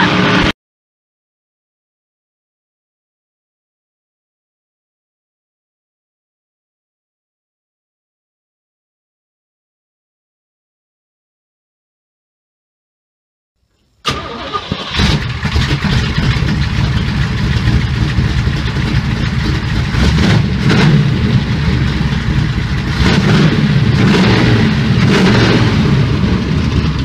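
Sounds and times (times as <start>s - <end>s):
race car engine starting and revving: 0.0s - 0.5s, 14.0s - 27.0s.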